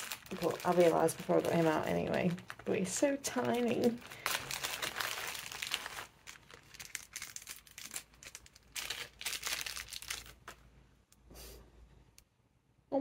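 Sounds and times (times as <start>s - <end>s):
plastic bag crinkling: 0.0s - 10.7s.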